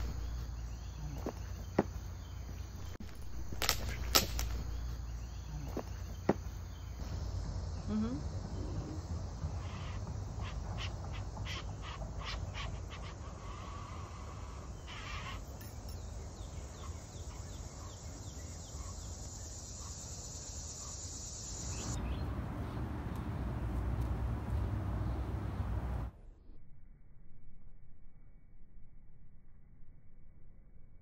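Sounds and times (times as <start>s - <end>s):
high insect drone: 0.0s - 26.0s.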